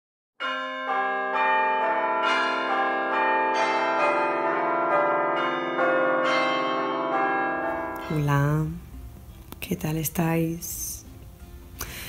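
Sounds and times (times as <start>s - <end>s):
bells ringing: 0.4s - 8.8s.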